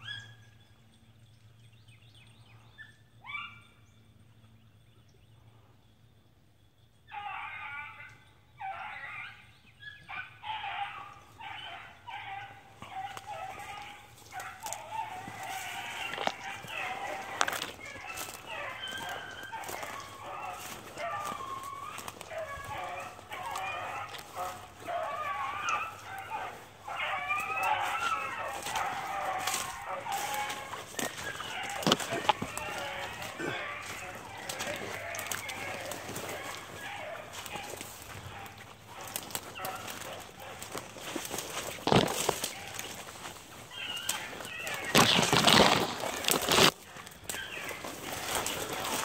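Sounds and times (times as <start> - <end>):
dogs baying: 0.0 - 0.7, 2.5 - 3.8, 7.1 - 49.0
branches scraping and clicking: 12.2 - 49.0.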